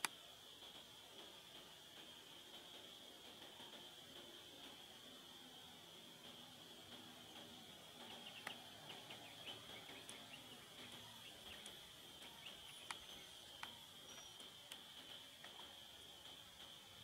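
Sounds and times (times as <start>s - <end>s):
sharp clicks: 8.2s - 8.6s.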